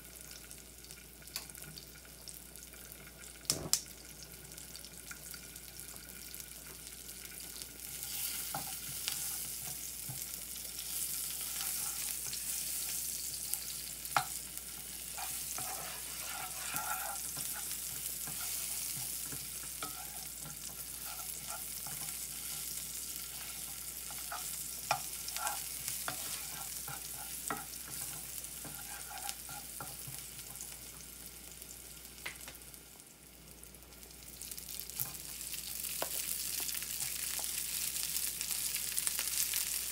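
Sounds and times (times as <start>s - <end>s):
garlic sizzling in oil: 0.0s - 39.9s.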